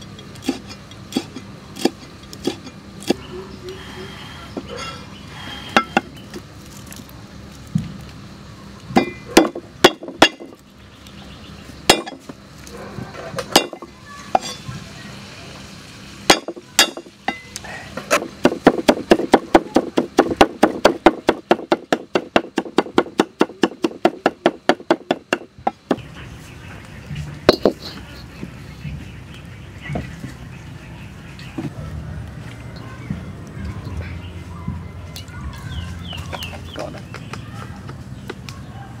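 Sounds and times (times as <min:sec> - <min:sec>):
cleaver chopping on wooden block: 0:18.1 - 0:26.0.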